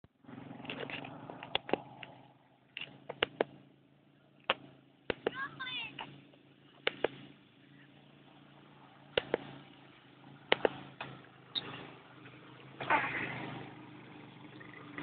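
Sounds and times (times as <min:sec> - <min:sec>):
sharp clicks: 0:00.6 - 0:03.6, 0:04.4 - 0:06.1, 0:06.8 - 0:07.2, 0:09.1 - 0:09.5, 0:10.5 - 0:11.8.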